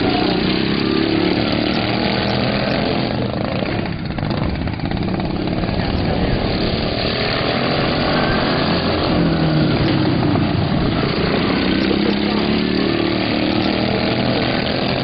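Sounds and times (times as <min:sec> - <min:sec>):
racing lawn mower engines: 0:00.0 - 0:15.0.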